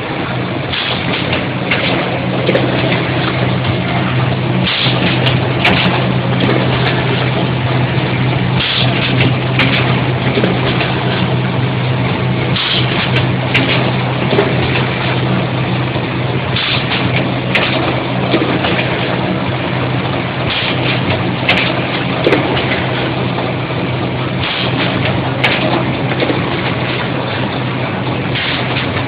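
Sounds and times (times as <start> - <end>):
machine humming: 0.0 - 29.0
machine clicking: 0.7 - 7.4, 8.2 - 11.3, 12.5 - 15.3, 16.5 - 19.2, 20.4 - 23.1, 24.4 - 27.6.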